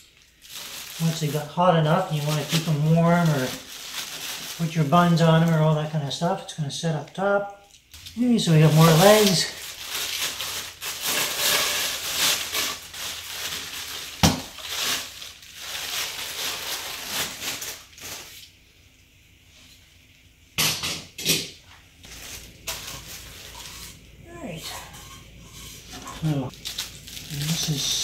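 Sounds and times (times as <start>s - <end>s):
plastic and cardboard rustling: 0.0s - 5.7s, 8.1s - 18.5s, 22.0s - 28.0s.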